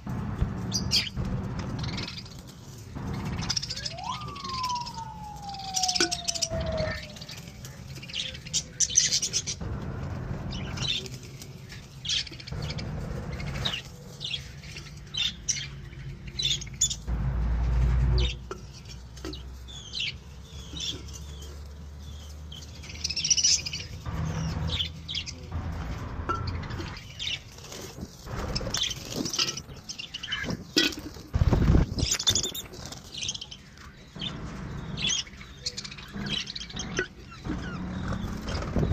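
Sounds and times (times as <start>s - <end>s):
budgerigars chirping: 0.6s - 17.1s, 18.2s - 38.9s.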